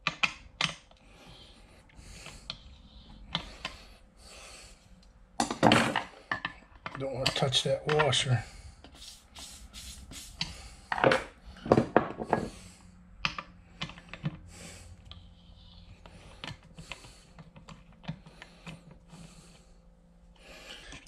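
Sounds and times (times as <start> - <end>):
spray can hissing: 8.9 - 10.5.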